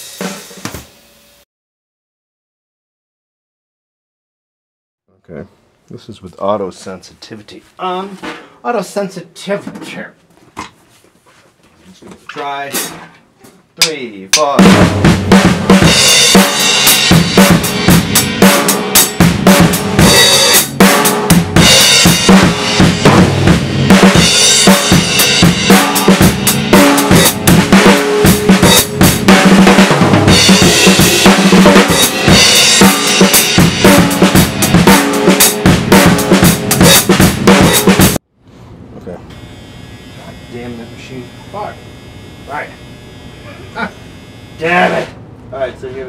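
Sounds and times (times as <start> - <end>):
drum kit beat: 0.0 - 0.9, 13.8 - 38.2.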